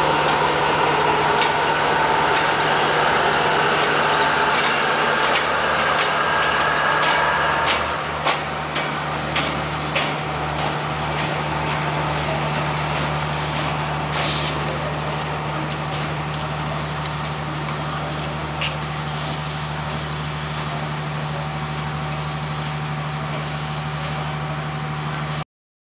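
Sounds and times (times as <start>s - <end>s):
locomotive engine droning: 0.0s - 25.4s
short hiss: 14.1s - 14.6s.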